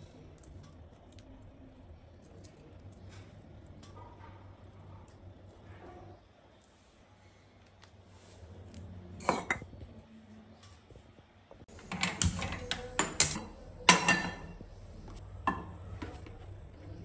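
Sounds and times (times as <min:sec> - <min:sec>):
gas burner hissing: 0:11.6 - 0:15.6.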